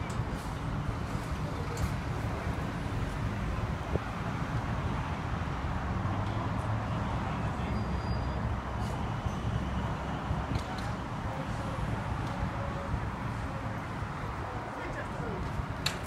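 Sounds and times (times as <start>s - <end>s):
wind buffeting microphone: 8.5s - 16.0s.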